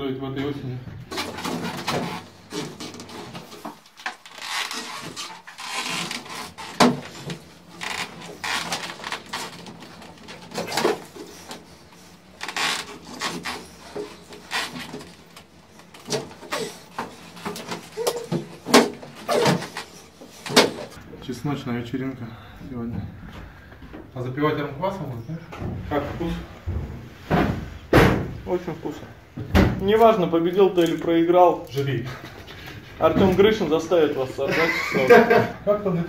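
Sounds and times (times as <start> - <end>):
table knocking and creaking: 1.0 - 21.0.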